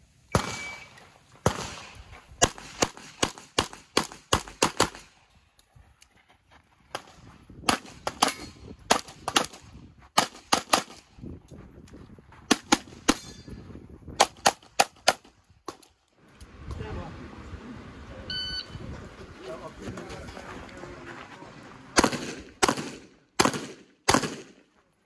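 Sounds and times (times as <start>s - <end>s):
handgun shots: 0.3s - 0.9s, 22.0s - 24.6s
shot timer beep: 18.3s - 18.8s.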